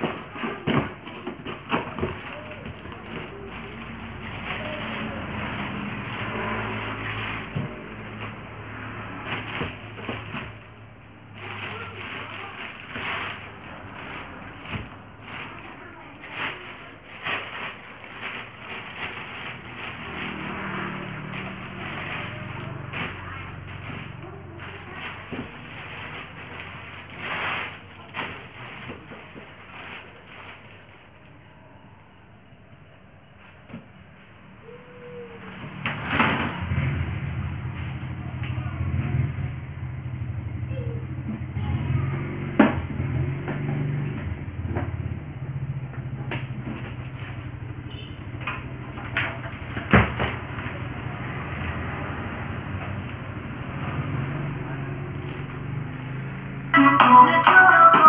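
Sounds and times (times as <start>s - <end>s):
plastic bags rustling: 0.0s - 31.4s.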